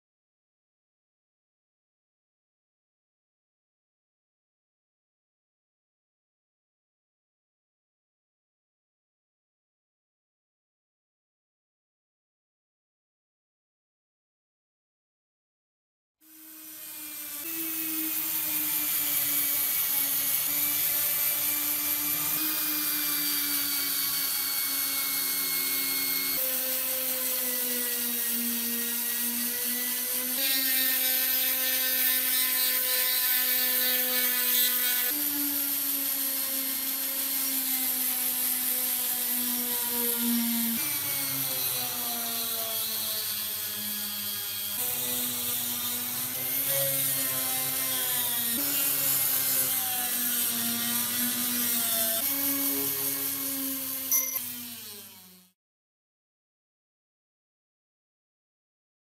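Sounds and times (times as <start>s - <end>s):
electric power tool motor whirring: 16.3s - 55.6s.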